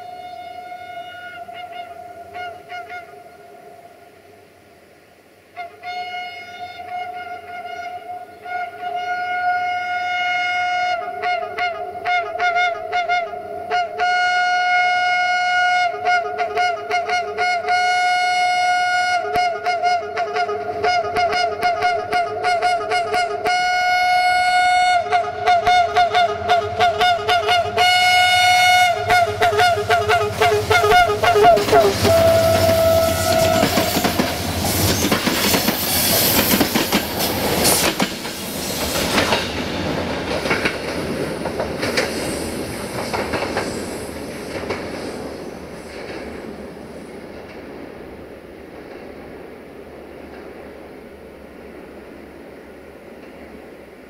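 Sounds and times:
two-tone locomotive horn: 0.0s - 3.9s, 5.6s - 34.5s.

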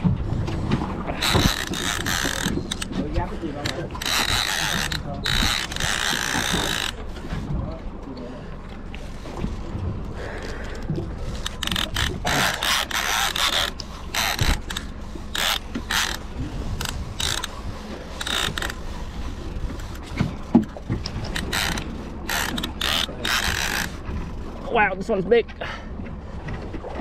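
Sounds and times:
fishing reel gears clicking: 1.2s - 3.0s, 3.6s - 7.0s, 11.3s - 18.8s, 21.0s - 24.0s.

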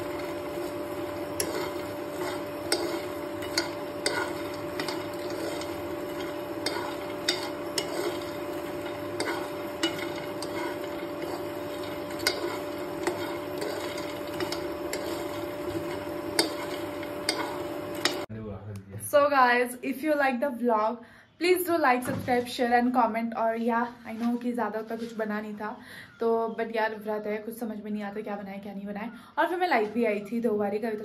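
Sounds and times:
seeds rattling in a pan: 0.0s - 18.3s
steady hum: 0.0s - 18.3s.

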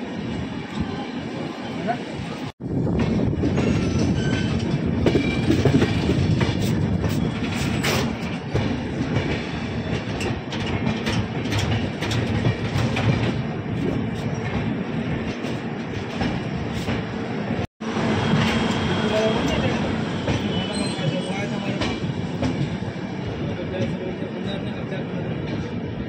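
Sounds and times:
train rumbling on rails: 0.0s - 26.0s.

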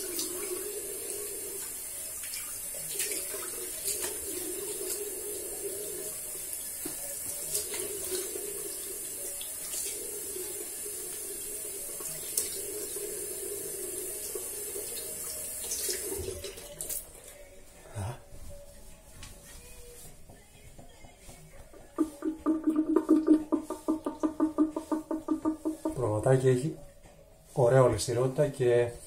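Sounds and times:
tap running into sink: 22.0s - 26.0s.

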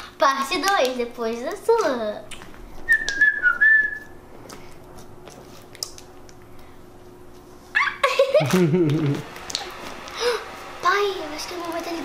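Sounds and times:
high falling whistle: 2.9s - 4.2s
slime clicking and crackling: 5.2s - 6.4s.

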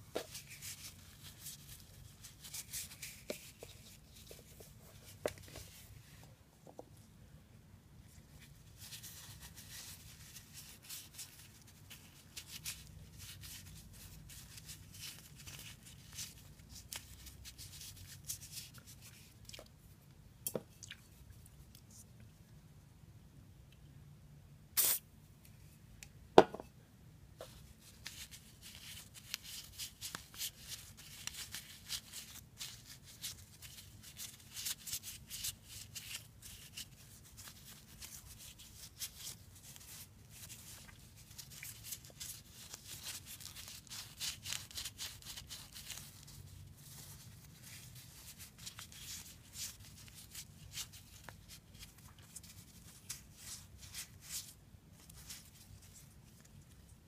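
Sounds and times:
tissue wiping scratchy crackles: 0.3s - 5.9s, 27.7s - 56.8s.

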